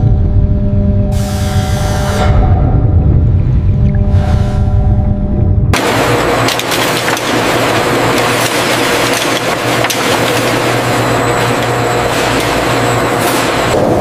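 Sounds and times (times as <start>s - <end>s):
steady machine hum: 0.0s - 14.0s
shells rattling on conveyor belt: 5.8s - 14.0s.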